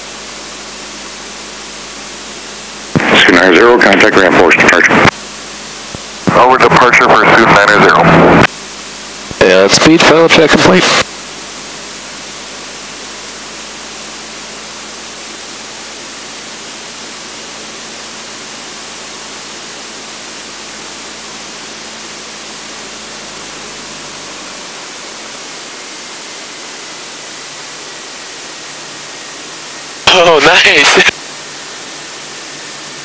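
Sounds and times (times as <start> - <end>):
cockpit noise hiss over intercom: 3.0 - 5.1, 6.3 - 8.5, 30.0 - 31.1.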